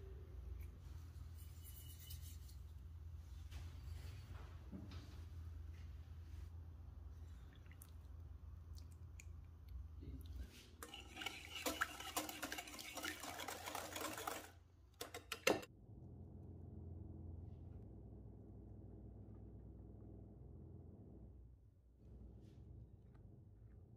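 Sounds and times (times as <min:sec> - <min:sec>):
utensil beating in mixing bowl: 0:10.3 - 0:15.7.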